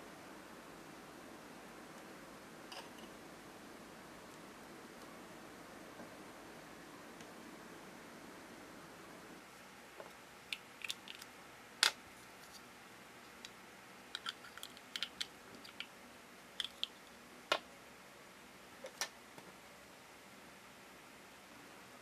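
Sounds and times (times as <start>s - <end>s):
plastic toy parts clicking: 10.5s - 12.0s, 13.4s - 15.9s.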